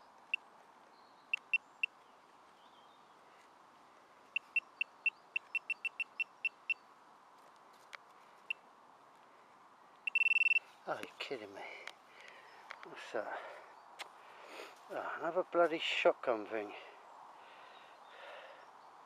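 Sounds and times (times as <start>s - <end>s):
metal detector pinpointer beeping: 1.3s - 1.9s, 4.4s - 6.8s, 10.1s - 10.7s.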